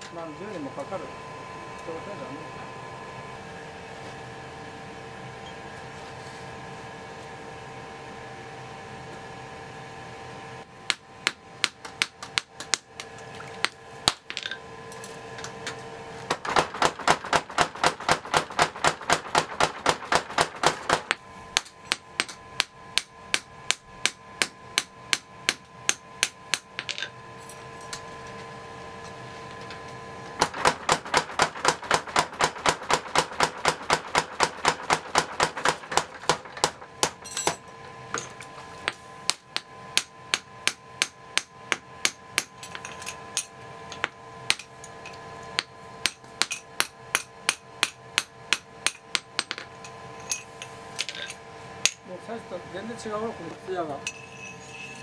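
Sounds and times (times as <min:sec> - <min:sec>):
hammer striking metal on anvil: 0:16.5 - 0:27.1, 0:45.6 - 0:52.1.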